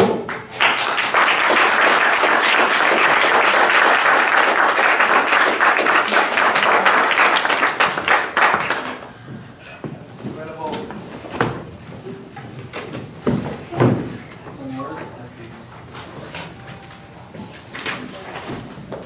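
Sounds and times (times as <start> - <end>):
audience applauding: 0.2 - 9.2.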